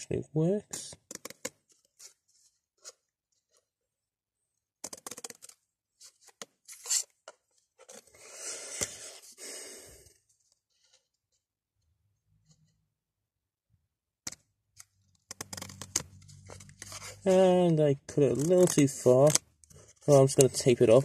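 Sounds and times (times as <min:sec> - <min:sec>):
card rustling scrape: 0:04.9 - 0:07.2, 0:07.8 - 0:09.4, 0:15.3 - 0:17.6.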